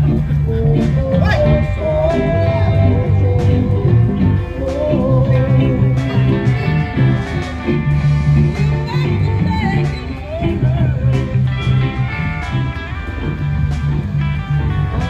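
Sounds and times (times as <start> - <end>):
person singing: 0.0 - 7.6, 8.6 - 12.8
guitar: 0.0 - 15.0.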